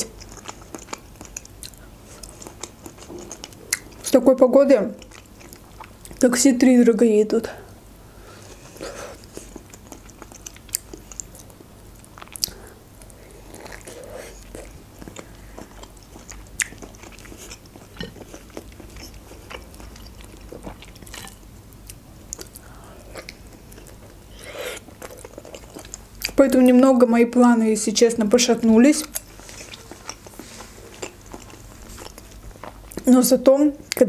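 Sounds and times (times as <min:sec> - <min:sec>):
chewing and biting food: 0:00.0 - 0:04.1, 0:05.0 - 0:06.2, 0:08.5 - 0:26.4, 0:29.0 - 0:33.1.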